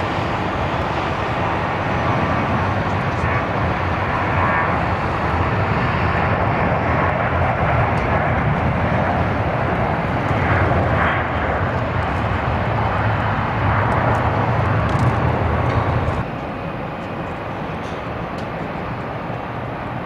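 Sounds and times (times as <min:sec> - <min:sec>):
jet engines rushing: 0:00.0 - 0:20.0.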